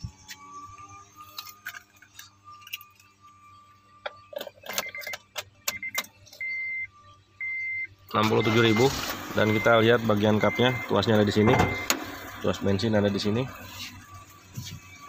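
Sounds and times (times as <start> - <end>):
car keys jangling: 1.2 - 3.5
dashboard warning chime beeping: 4.2 - 15.0.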